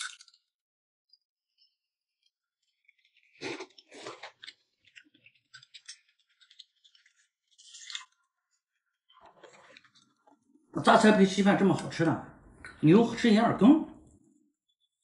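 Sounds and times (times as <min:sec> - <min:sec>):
crunchy chewing: 0:02.6 - 0:10.4
slurping from a bowl: 0:03.0 - 0:08.2
wet mouth clicks: 0:12.5 - 0:12.8.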